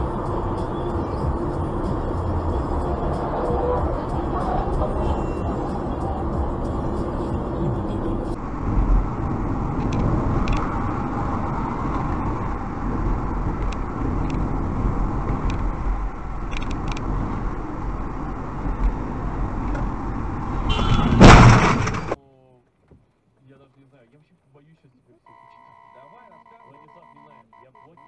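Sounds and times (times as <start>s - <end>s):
car rumble from inside cabin: 0.0s - 21.3s.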